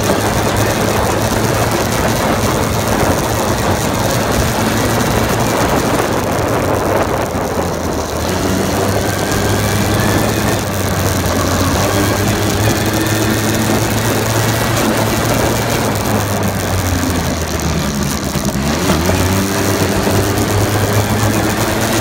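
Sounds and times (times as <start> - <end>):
atv engine running: 0.0 - 22.0
wind rushing over microphone: 0.0 - 22.0.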